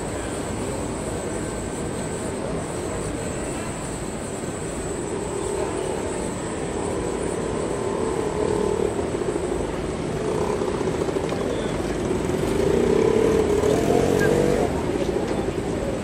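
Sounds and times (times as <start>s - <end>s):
street noise: 0.0s - 16.0s
tram droning hum: 0.0s - 16.0s.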